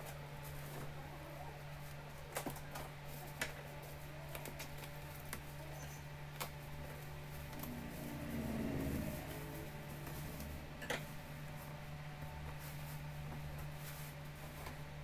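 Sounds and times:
steady low hum: 0:03.6 - 0:15.0.

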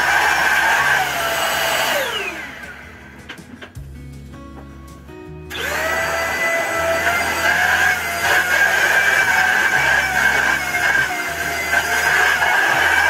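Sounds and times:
handheld vacuum cleaner whining: 0:00.0 - 0:02.9, 0:05.5 - 0:13.0.

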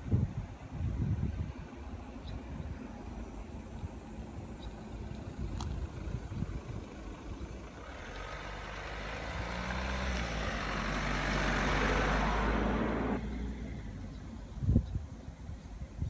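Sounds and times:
vehicle engine hum: 0:00.0 - 0:16.0.

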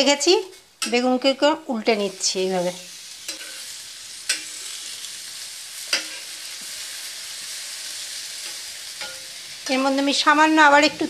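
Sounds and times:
eggplant sizzling in oil: 0:00.0 - 0:11.0
metal spatula clicking on pan: 0:00.8 - 0:01.1, 0:03.3 - 0:03.6, 0:04.3 - 0:04.6, 0:05.9 - 0:06.2, 0:08.4 - 0:10.2.

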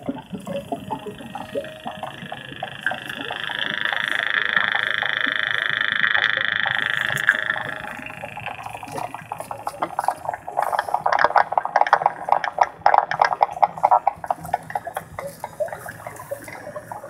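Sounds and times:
faint clicks and crackles: 0:00.0 - 0:17.0
frog-like buzzing trill: 0:00.0 - 0:17.0.

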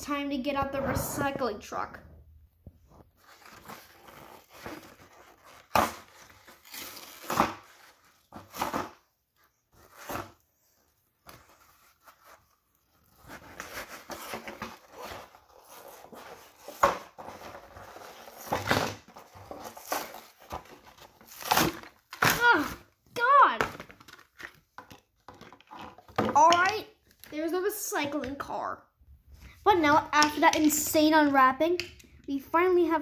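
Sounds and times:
cardboard and plastic tearing: 0:03.2 - 0:09.1, 0:09.8 - 0:24.7.

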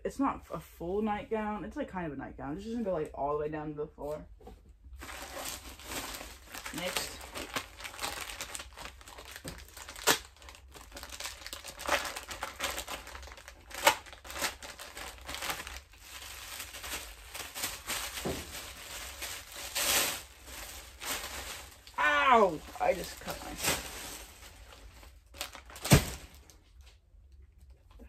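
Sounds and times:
plastic bags crinkling: 0:05.0 - 0:27.0.

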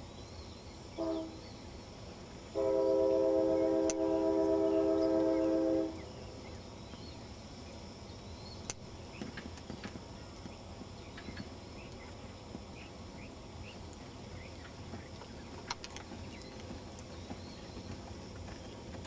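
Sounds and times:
horse hoofbeats on dirt: 0:14.4 - 0:19.0.

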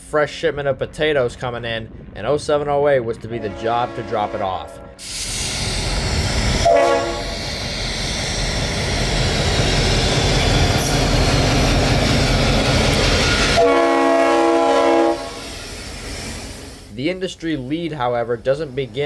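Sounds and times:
diesel locomotive engines running: 0:00.0 - 0:19.0
train air horn: 0:03.4 - 0:05.0, 0:06.6 - 0:07.4, 0:13.4 - 0:15.5
train wheels rolling on rails: 0:05.0 - 0:19.0.

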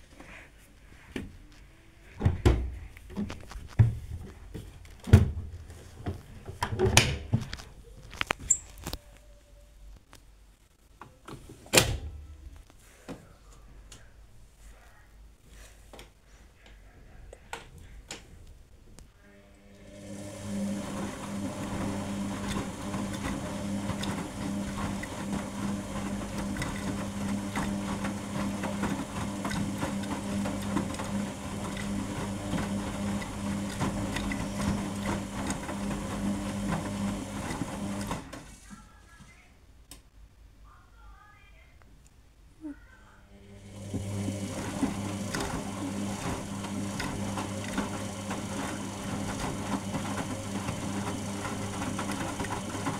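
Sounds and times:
washing machine drum turning: 0:20.0 - 0:38.4, 0:43.8 - 0:52.9.

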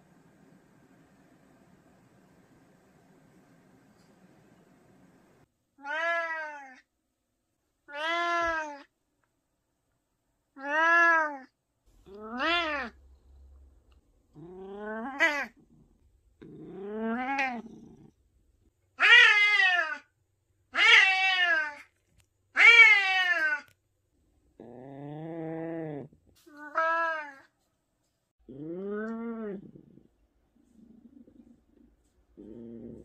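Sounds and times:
cat meowing: 0:05.8 - 0:06.8, 0:07.9 - 0:08.9, 0:10.6 - 0:11.5, 0:12.1 - 0:13.0, 0:19.0 - 0:20.1, 0:20.8 - 0:21.9, 0:22.6 - 0:23.7, 0:26.5 - 0:27.5.

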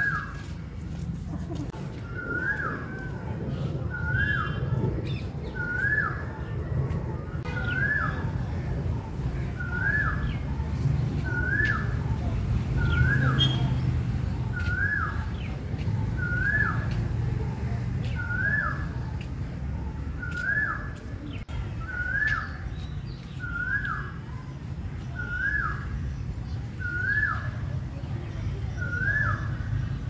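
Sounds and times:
bird whistled call: 0:03.9 - 0:06.3, 0:11.2 - 0:12.0, 0:16.1 - 0:17.0, 0:21.8 - 0:24.1, 0:26.8 - 0:27.6, 0:28.8 - 0:29.7.

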